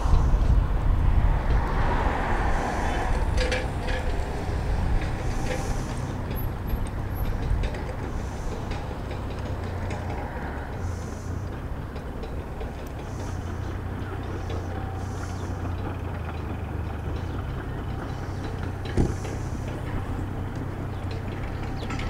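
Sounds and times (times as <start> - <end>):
distant steam train rumble: 0.0 - 22.0.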